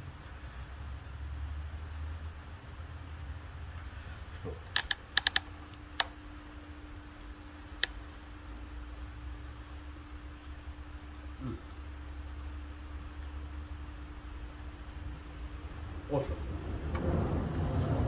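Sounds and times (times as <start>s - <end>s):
faint steady hum: 0.0s - 18.0s
low background rumble: 0.0s - 18.0s
sharp clicks: 4.6s - 6.2s.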